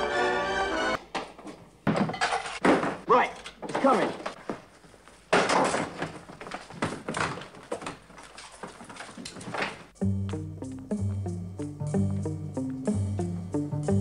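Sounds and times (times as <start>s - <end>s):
scraping and shuffling: 1.3s - 10.5s
music with strong bass line: 10.0s - 14.0s.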